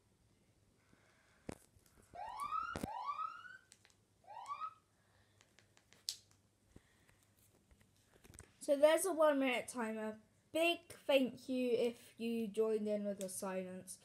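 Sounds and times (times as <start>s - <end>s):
electronic timer alarm whoops: 2.2s - 3.7s, 4.3s - 4.8s.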